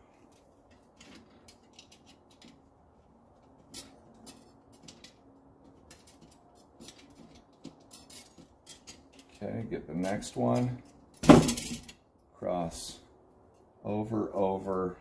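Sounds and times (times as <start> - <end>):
bicycle spokes clicking: 0.2 - 2.7.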